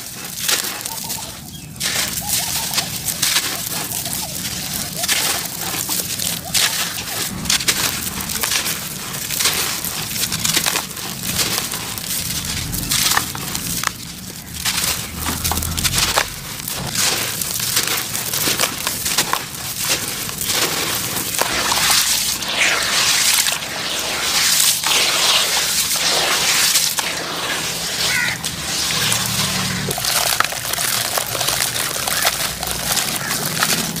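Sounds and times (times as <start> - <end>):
dry gravel mix crumbling: 0.0 - 34.0
water splashing and sloshing: 0.0 - 34.0.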